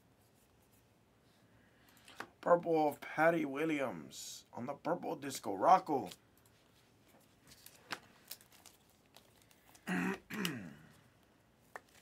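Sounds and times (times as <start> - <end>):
man clearing throat: 9.8 - 11.0.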